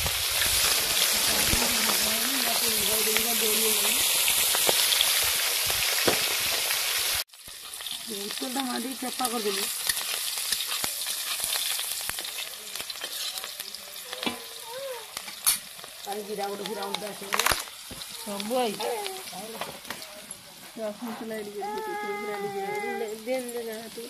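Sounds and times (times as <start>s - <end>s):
hot oil sizzling: 0.0s - 24.0s
metal spatula scraping a wok: 7.6s - 13.6s.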